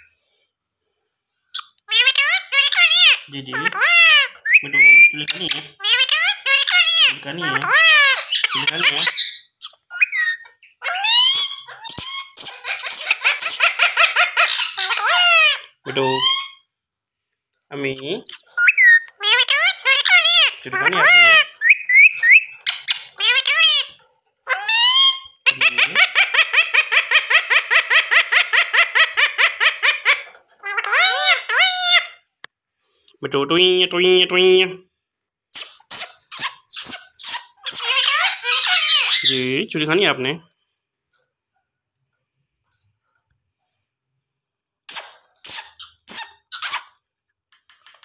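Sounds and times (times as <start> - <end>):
parrot calling and chattering: 1.5 - 16.7, 17.7 - 32.3, 35.5 - 40.7, 44.8 - 48.0.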